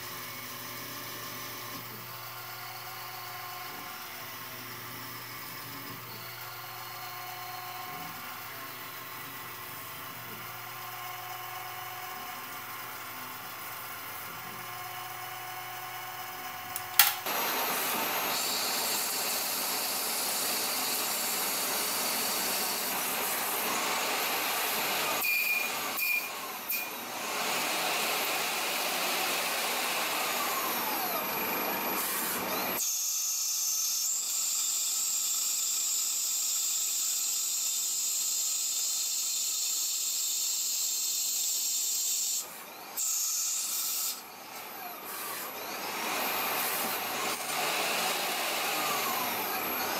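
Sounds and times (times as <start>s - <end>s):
sharp click: 16.8s - 17.3s
lathe cutting metal hiss: 17.3s - 44.3s.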